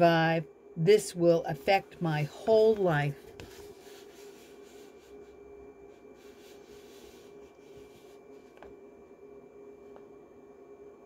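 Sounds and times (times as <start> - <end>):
faint steady hum: 0.0 - 11.0
paper book pages rustling: 2.4 - 8.8.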